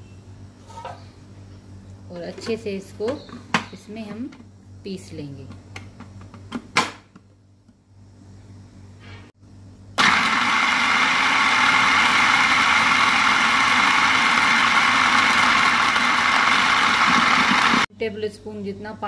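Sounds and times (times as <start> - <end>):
food processor running: 10.0 - 17.9.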